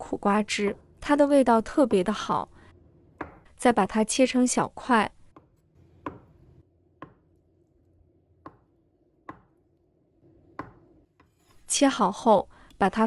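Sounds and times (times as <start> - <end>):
knife chopping on wooden board: 3.2 - 3.5, 5.3 - 6.4, 7.0 - 7.3, 8.4 - 9.6, 10.6 - 11.3.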